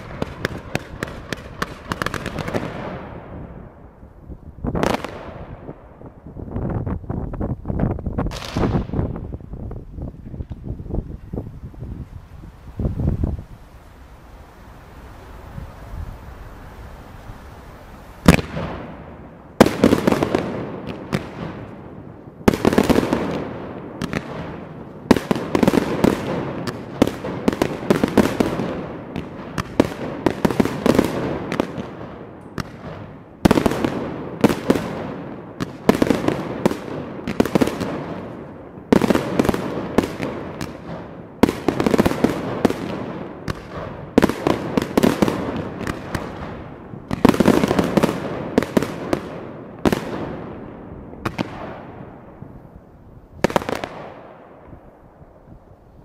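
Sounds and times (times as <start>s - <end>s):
fireworks bangs: 0.0s - 3.9s, 4.6s - 6.8s, 7.8s - 11.3s, 16.6s - 52.7s, 53.4s - 55.1s
fireworks crackling: 0.0s - 56.0s.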